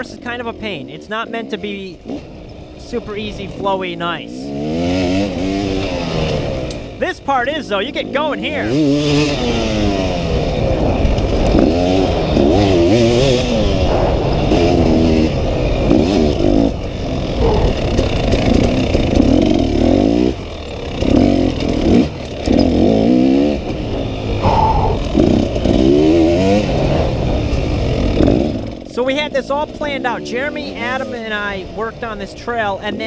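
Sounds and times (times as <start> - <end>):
dirt bike engine revving: 0.0 - 33.0.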